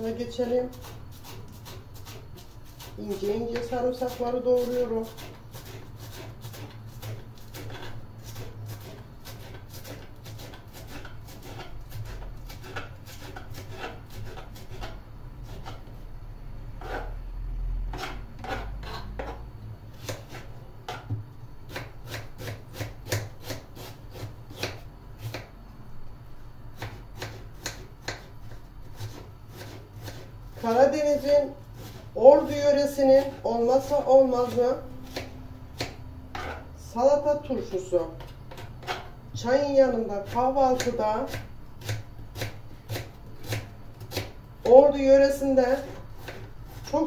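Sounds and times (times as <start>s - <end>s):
knife chopping on wooden board: 0.7s - 15.9s, 17.9s - 19.4s, 20.0s - 25.5s, 26.8s - 28.3s, 29.0s - 30.7s, 33.2s - 36.7s, 38.2s - 39.1s, 40.2s - 44.8s, 45.8s - 46.9s.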